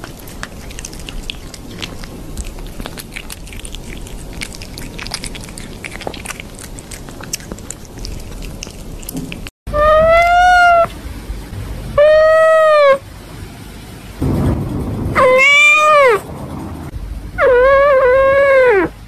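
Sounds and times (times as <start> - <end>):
kitten chewing mouth clicks: 0.0 - 9.5.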